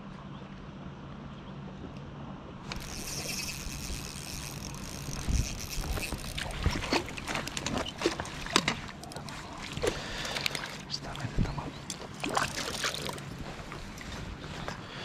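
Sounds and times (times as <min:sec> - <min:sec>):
sharp water splashes: 0:12.0 - 0:13.3.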